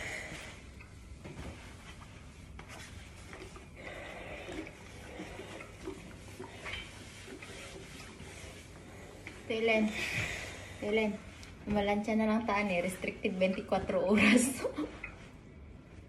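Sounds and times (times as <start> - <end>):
steam iron rubbing over fabric: 1.3 - 15.0.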